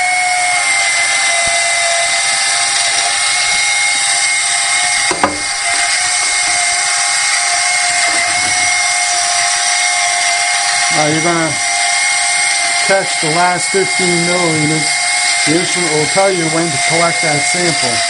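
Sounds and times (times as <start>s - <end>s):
small electric motor whining: 0.0s - 18.0s.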